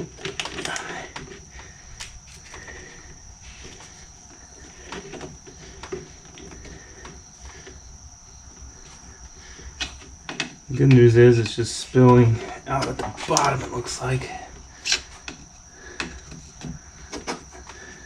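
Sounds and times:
steady high-pitched whine: 0.0 - 18.0
hands working a hose loose: 14.8 - 17.8.

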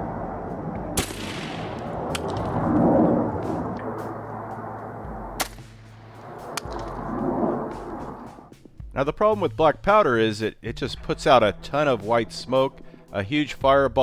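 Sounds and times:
deep rumble: 0.0 - 9.0
sharp crack: 0.9 - 8.5
shotgun report with echo: 1.0 - 2.5, 5.4 - 6.9.

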